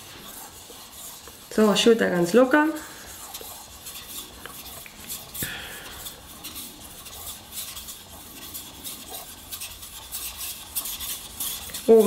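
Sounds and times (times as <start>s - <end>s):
knife scraping on wet whetstone: 0.0s - 12.0s.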